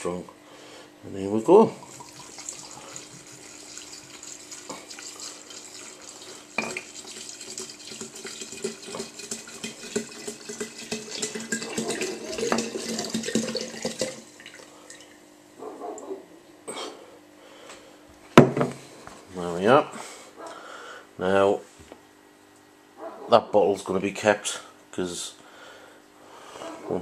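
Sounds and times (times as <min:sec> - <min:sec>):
liquid pouring into a glass jar: 0:01.7 - 0:15.2.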